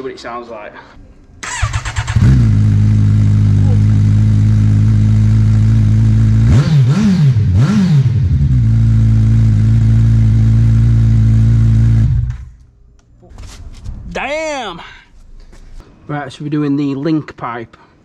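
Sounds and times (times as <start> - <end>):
motorcycle engine idling and revving: 1.4 - 12.6.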